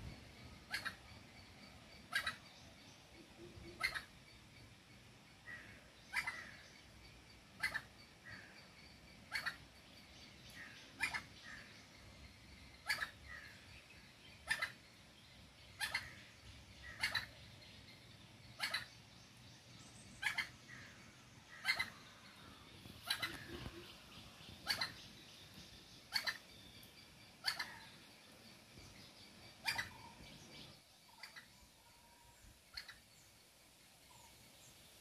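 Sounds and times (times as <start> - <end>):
junglefowl hen calling: 16.9 - 17.4, 18.6 - 18.9, 21.5 - 22.0, 23.0 - 25.0, 27.4 - 27.9.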